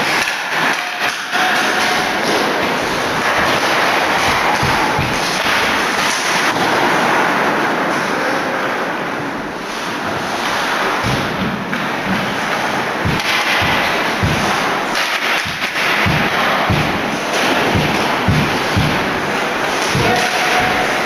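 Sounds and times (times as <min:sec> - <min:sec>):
crowd din in arena: 0:00.0 - 0:21.0
low thumps: 0:02.6 - 0:06.1, 0:10.2 - 0:21.0.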